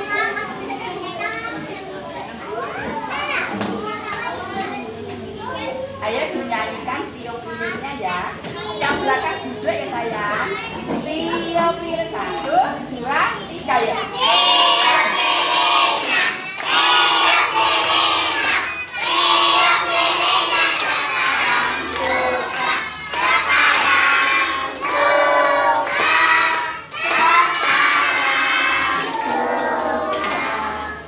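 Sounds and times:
young children singing together: 0:14.0 - 0:31.0.

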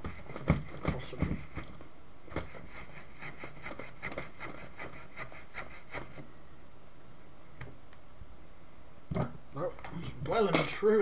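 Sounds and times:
steel wool scrubbing metal: 0:02.4 - 0:06.2.

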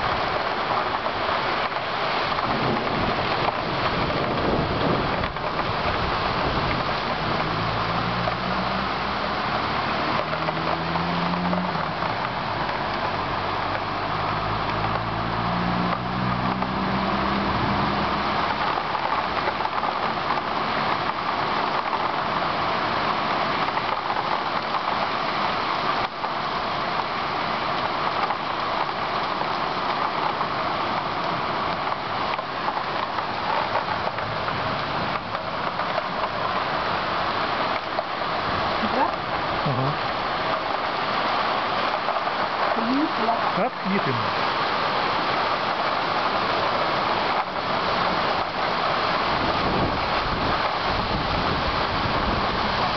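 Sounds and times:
heavy rain on trees: 0:00.0 - 0:52.9
vehicle engine: 0:05.2 - 0:20.2.

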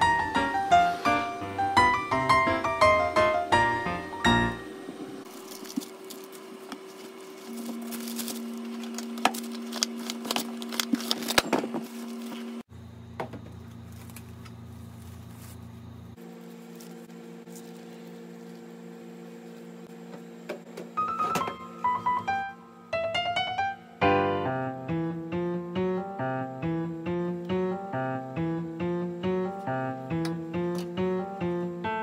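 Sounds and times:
paper towel and plastic crinkling: 0:05.3 - 0:12.6.

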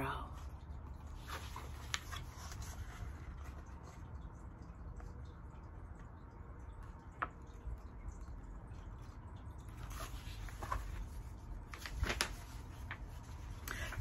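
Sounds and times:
low steady hum: 0:00.0 - 0:14.0
book pages rustling: 0:00.4 - 0:04.2, 0:09.0 - 0:14.0.

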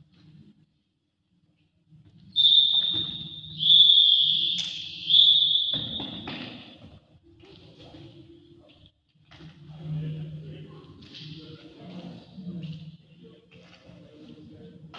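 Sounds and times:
referee's whistle blasts: 0:02.4 - 0:06.3.

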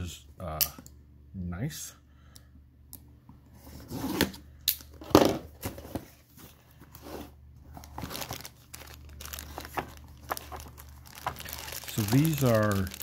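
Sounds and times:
plastic bags crinkling: 0:07.7 - 0:13.0.

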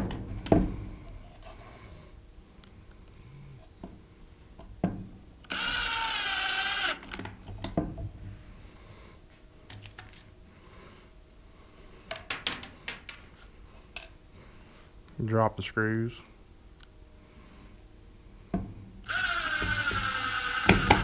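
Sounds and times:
impact driver driving screw: 0:05.5 - 0:07.2, 0:19.1 - 0:21.0.

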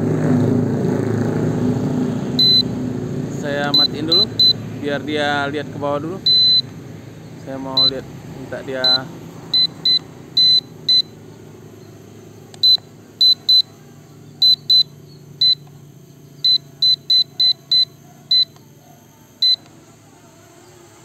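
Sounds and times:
high electronic beeps: 0:02.4 - 0:02.8, 0:03.6 - 0:04.6, 0:06.2 - 0:06.7, 0:07.7 - 0:08.0, 0:08.8 - 0:13.8, 0:14.4 - 0:18.6, 0:19.4 - 0:19.6.

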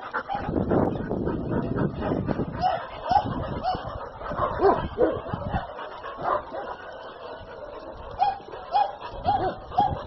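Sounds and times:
dog yipping: 0:02.6 - 0:03.9, 0:08.2 - 0:10.0.

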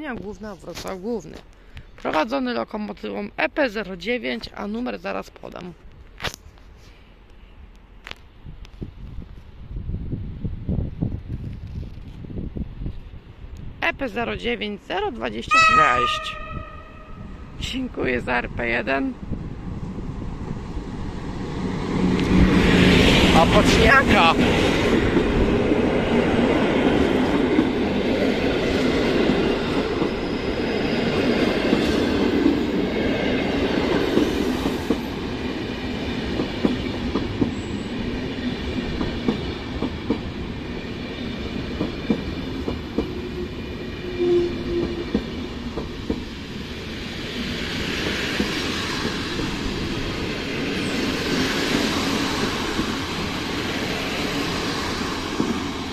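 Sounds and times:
train coaches rumbling past: 0:15.3 - 0:55.9.

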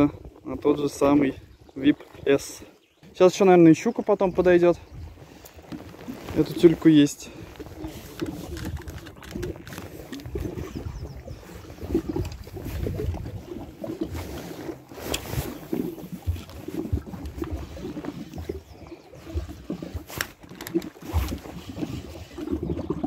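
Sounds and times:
water lapping: 0:00.0 - 0:23.0
wind buffeting microphone: 0:06.0 - 0:19.9.

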